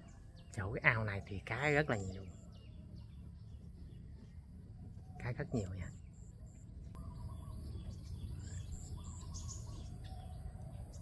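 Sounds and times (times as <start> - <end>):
steady low rumble: 0.0 - 11.0
lower whistled bird notes: 7.0 - 11.0.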